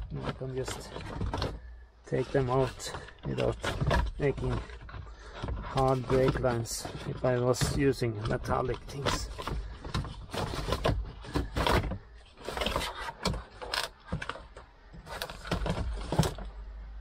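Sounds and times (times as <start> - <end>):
plastic trim clicking and rattling: 0.0 - 16.6.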